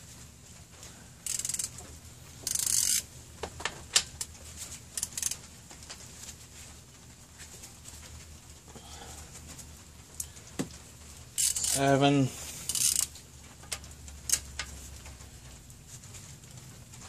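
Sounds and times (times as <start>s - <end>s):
hand ratchet clicking: 1.2s - 1.7s, 2.4s - 3.0s, 5.0s - 5.4s, 11.4s - 12.0s, 12.7s - 13.1s, 14.3s - 14.7s.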